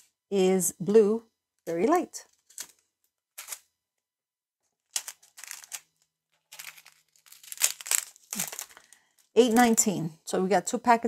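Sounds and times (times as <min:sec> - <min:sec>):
plastic packets crinkling: 0:02.3 - 0:03.7, 0:04.8 - 0:09.9.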